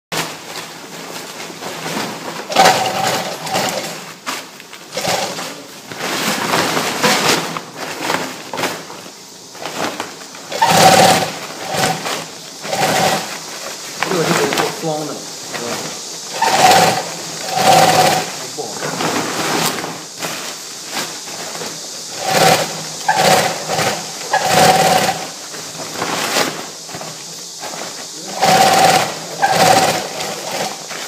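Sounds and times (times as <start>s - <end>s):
industrial sewing machine humming: 1.8s - 4.2s, 4.9s - 5.8s, 9.5s - 20.5s, 21.3s - 31.0s.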